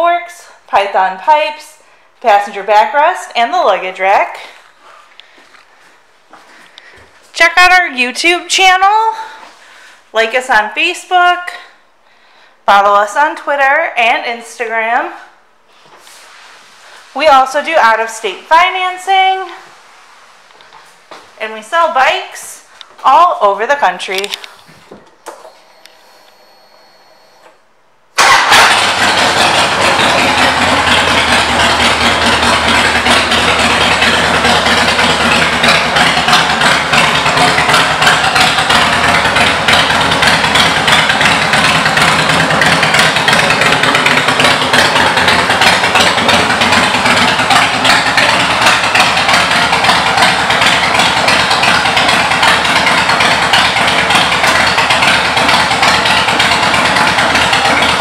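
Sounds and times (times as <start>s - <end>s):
motorcycle engine starting and idling: 24.1s - 27.6s, 28.2s - 58.0s.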